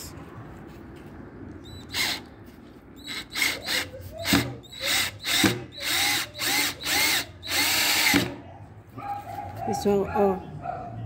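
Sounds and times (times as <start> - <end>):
cordless drill whining: 1.7 - 2.3, 3.0 - 8.3.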